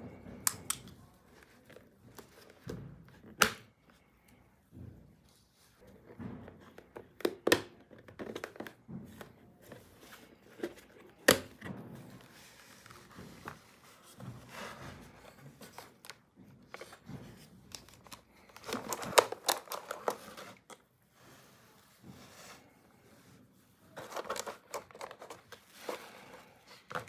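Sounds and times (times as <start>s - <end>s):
plastic scraping and rubbing: 7.8s - 27.0s
plastic clicks and rattles: 17.7s - 20.8s, 24.0s - 25.5s.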